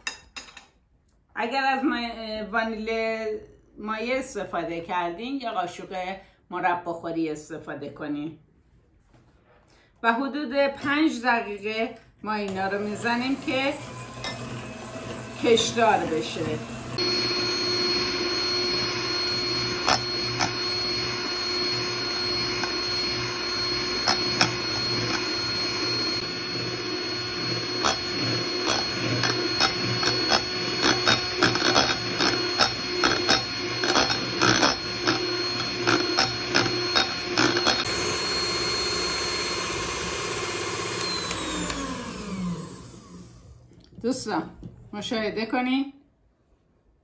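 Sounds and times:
electric hand mixer whining: 12.5s - 43.8s.

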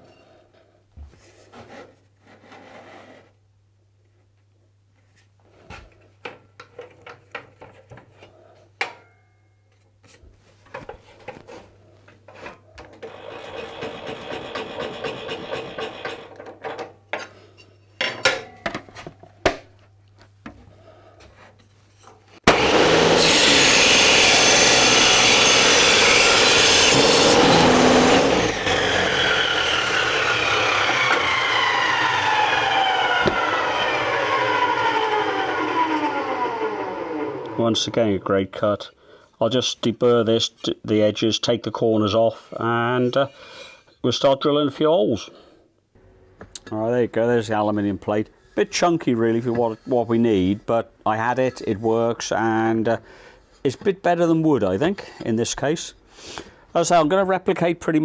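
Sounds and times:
saw blade winding down: 13.0s - 16.3s, 22.5s - 37.6s
saw screeching through aluminium: 13.0s - 16.3s, 22.5s - 36.8s.

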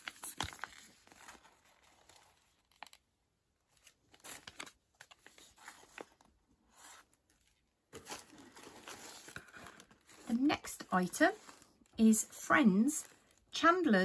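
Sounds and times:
packaging crinkling and rustling: 0.0s - 3.1s, 3.7s - 10.4s.

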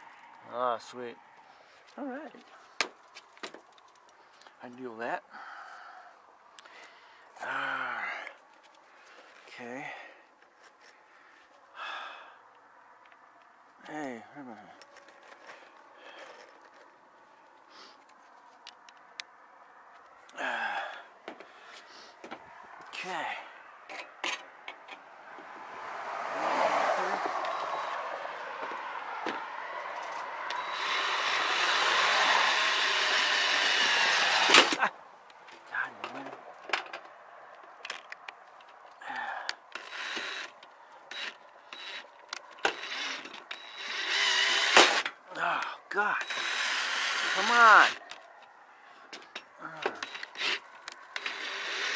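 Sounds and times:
cordless drill running: 30.5s - 34.8s, 39.8s - 40.5s, 41.1s - 42.0s, 42.7s - 45.0s, 46.2s - 48.0s, 50.0s - 50.6s, 51.2s - 51.9s.

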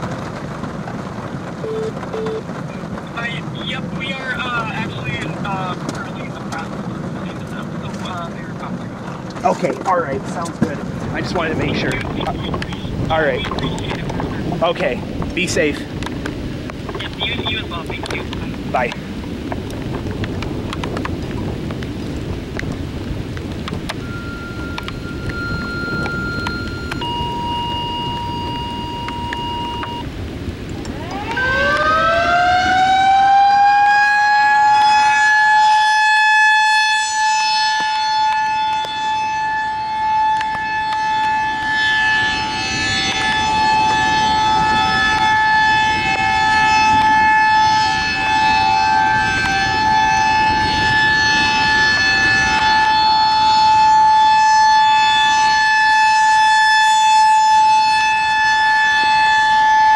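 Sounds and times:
rotating warning siren wailing: 0.0s - 59.9s
short steady tone: 1.6s - 2.4s, 24.0s - 30.1s.

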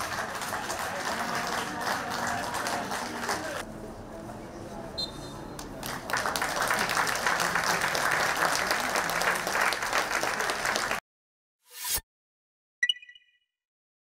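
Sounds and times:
spectators applauding: 0.0s - 3.6s, 5.6s - 11.0s.

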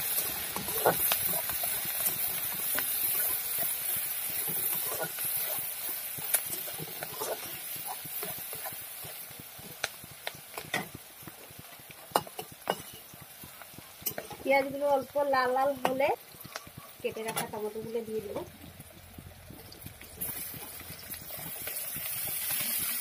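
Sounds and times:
onions sizzling in oil: 0.0s - 23.0s
spatula scraping pan: 0.1s - 9.8s, 12.0s - 13.1s.

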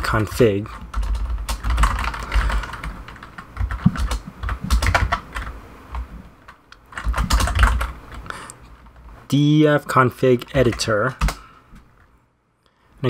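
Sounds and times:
keyboard typing: 0.1s - 8.4s, 10.6s - 11.4s.

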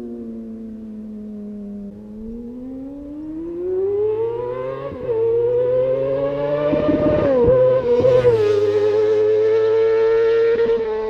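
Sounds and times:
motorcycle engine accelerating: 0.0s - 11.0s.

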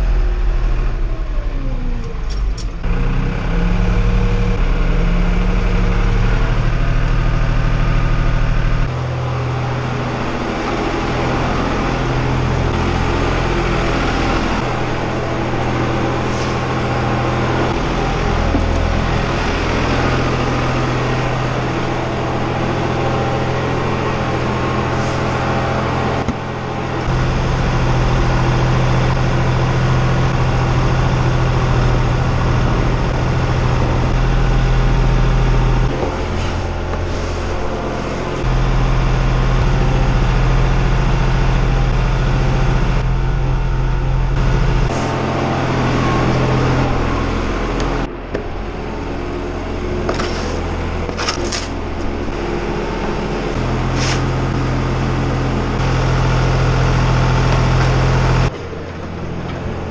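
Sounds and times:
feed mixer engine humming: 2.8s - 59.9s
short scrapes or knocks: 50.1s - 51.8s, 54.0s - 54.2s.

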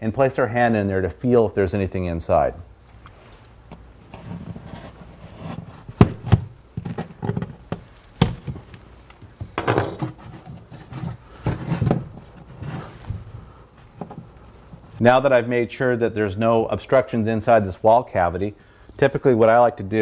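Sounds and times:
sharp knocks and cracks: 5.9s - 8.8s.

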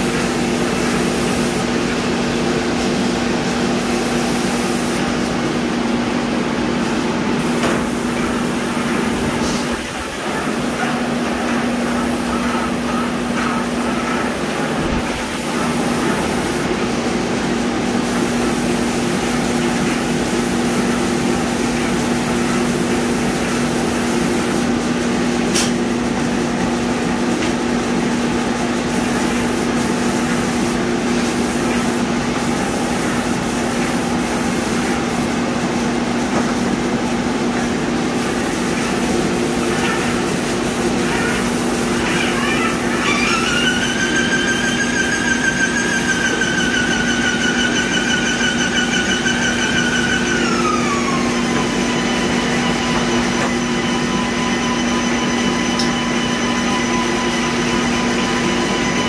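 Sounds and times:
paint spray gun hissing: 0.0s - 1.7s, 7.4s - 16.7s, 18.0s - 24.7s, 28.8s - 35.4s, 38.1s - 43.9s.

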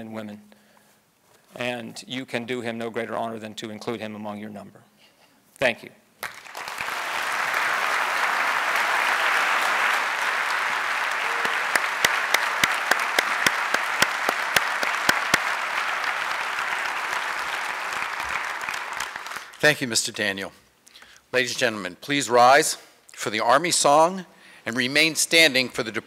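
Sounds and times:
audience applauding: 6.2s - 19.6s
single sharp claps: 6.2s - 19.6s.

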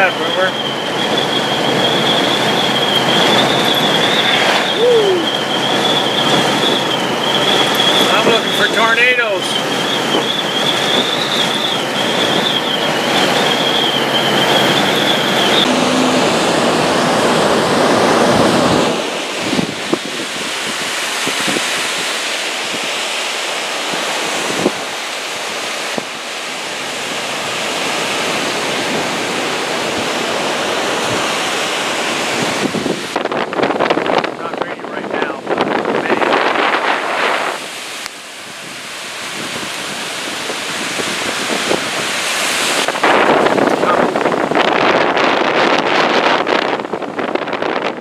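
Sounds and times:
wavering high whine: 0.0s - 34.7s
gusty wind on microphone: 0.0s - 48.0s
road noise inside vehicle: 0.0s - 48.0s
waves breaking on shore: 0.0s - 48.0s.

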